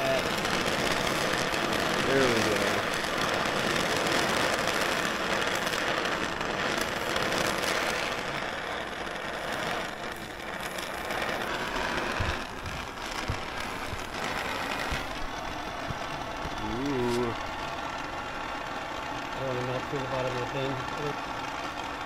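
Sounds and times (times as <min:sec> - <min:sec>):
gas torch flame hissing: 0:00.0 - 0:22.0
low bumps: 0:10.2 - 0:17.9.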